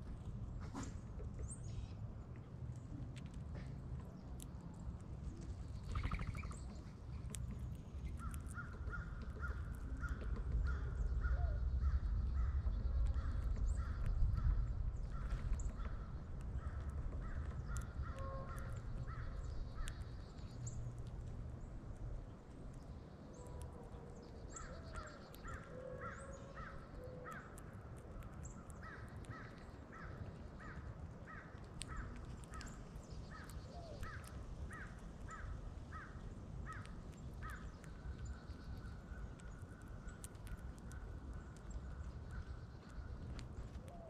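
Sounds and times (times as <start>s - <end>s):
faint high chirps: 5.8s - 6.7s
bird calling: 5.8s - 6.9s.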